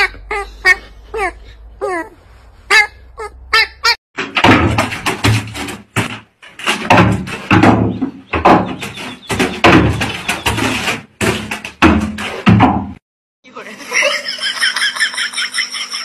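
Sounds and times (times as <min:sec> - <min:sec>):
wooden gate banging and rattling: 0:04.2 - 0:13.0.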